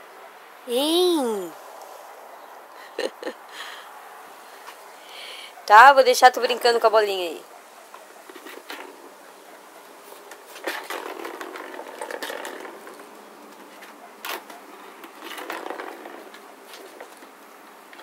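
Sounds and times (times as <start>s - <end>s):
plastic ball rattling in track: 10.7s - 13.1s, 15.0s - 17.1s.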